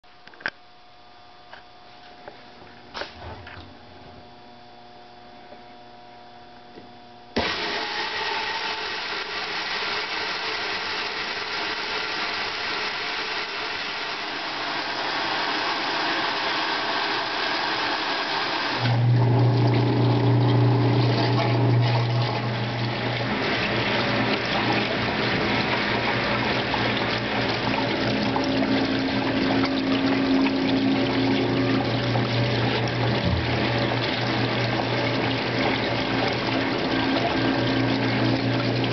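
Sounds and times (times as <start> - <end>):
water rushing into tub: 7.4 - 38.9
low motor hum: 18.8 - 38.9.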